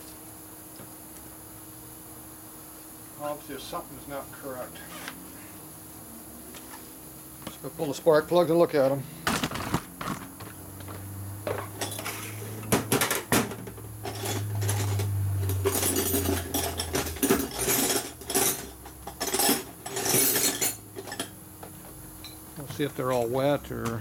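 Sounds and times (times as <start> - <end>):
steady low hum: 1.4 - 24.0
metal hand tools clattering: 14.0 - 21.3.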